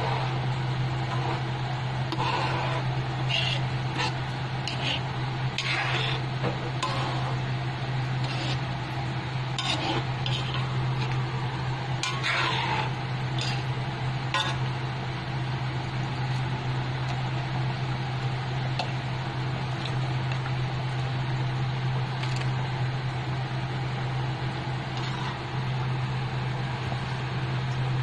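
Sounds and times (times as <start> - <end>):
steady low hum: 0.0 - 28.0
ladle scraping a pan: 2.1 - 7.4, 8.2 - 8.7, 9.5 - 11.2, 12.0 - 13.7, 14.3 - 14.7, 25.0 - 25.4.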